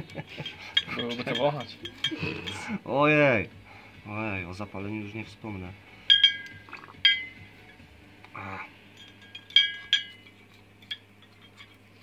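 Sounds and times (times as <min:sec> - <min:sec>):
metal parts clinking in glass jar: 0:00.4 - 0:02.6, 0:06.1 - 0:07.8, 0:08.9 - 0:11.8.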